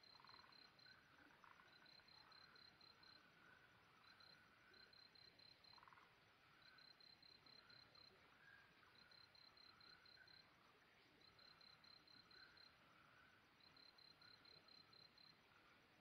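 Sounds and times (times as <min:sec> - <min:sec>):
cricket chirping: 0:00.0 - 0:16.0
faint low insect calls: 0:00.0 - 0:16.0.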